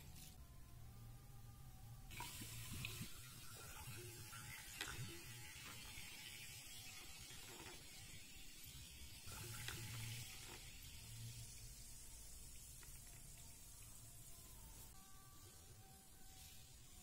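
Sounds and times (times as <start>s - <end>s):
soda water fizzing over ice: 2.1s - 14.9s.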